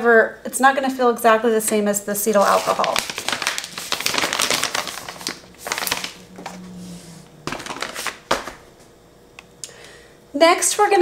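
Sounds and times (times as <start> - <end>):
plastic bag crinkling: 2.2 - 6.8, 7.4 - 8.7.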